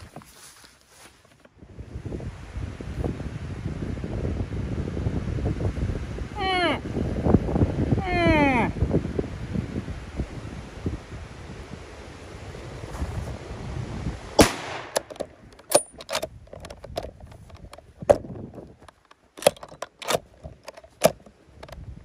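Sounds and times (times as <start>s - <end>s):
rifle shot: 14.4s - 15.1s
rifle action clicking: 18.9s - 21.8s.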